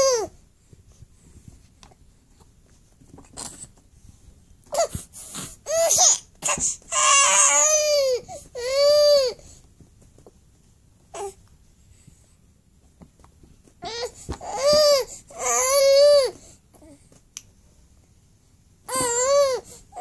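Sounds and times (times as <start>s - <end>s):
infant crying: 0.0s - 0.4s, 5.6s - 9.4s, 13.8s - 16.9s, 18.9s - 20.0s.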